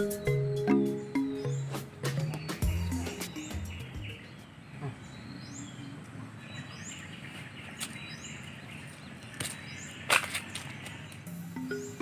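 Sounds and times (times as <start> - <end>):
rising bird chirps: 0.0 - 5.9
outdoor background hiss: 0.0 - 12.0.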